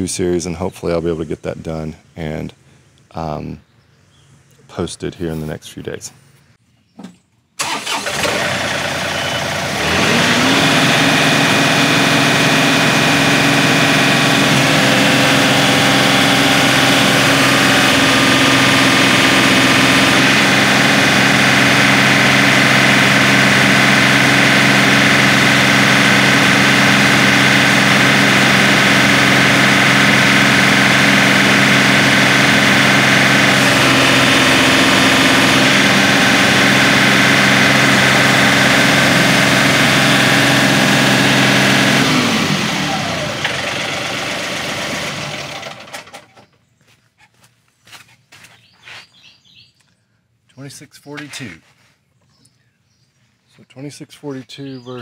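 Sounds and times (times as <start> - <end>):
tractor diesel engine running: 7.6 - 46.8.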